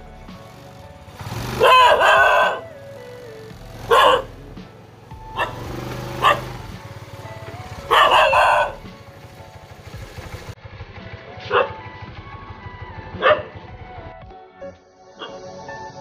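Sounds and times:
dog barking: 1.6s - 2.8s, 3.8s - 4.4s, 5.3s - 6.6s, 7.8s - 8.9s, 11.5s - 11.8s, 13.2s - 13.6s, 15.2s - 15.4s.

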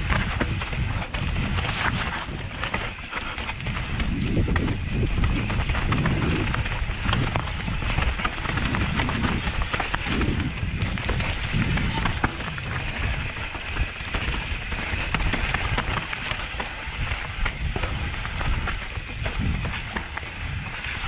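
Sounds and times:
bike rattling and knocking: 0.0s - 21.0s
tyres rolling over dirt and stones: 0.0s - 21.0s
wind buffeting microphone: 0.0s - 21.0s.

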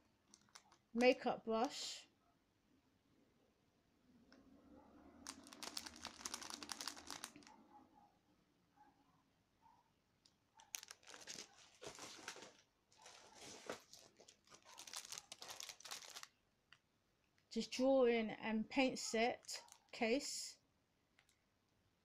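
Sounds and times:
plastic packaging crinkling: 0.3s - 1.2s, 5.2s - 7.5s, 10.6s - 16.4s.

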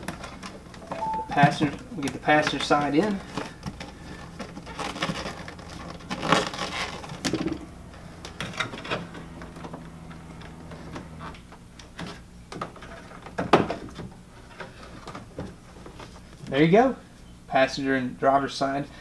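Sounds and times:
plastic hose rustling and scraping: 2.5s - 7.6s, 12.0s - 16.5s.

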